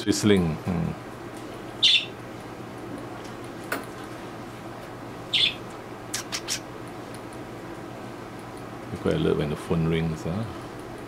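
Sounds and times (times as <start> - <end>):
parrots chirping: 1.8 - 2.2, 5.3 - 6.7.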